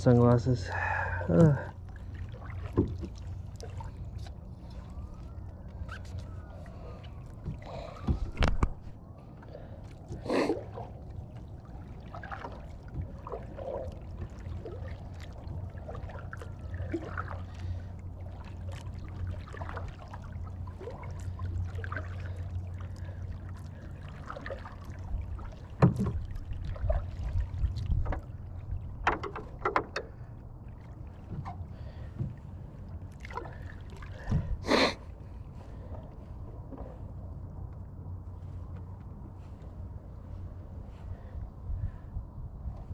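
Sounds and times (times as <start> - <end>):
steady low rumble: 0.0 - 42.9
plastic kayak knocks and clunks: 2.7 - 3.2, 25.7 - 26.3, 29.0 - 30.0.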